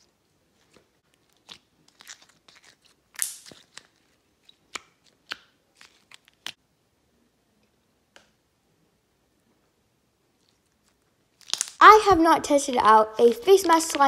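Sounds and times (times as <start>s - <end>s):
slime sticky clicks and pops: 3.1s - 3.9s, 11.4s - 11.8s.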